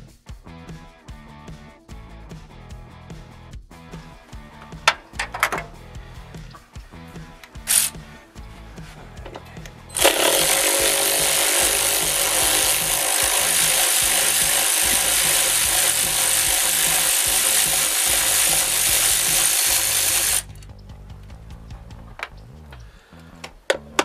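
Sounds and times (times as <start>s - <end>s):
electric ratchet whirring: 7.6s - 8.0s, 9.9s - 20.6s.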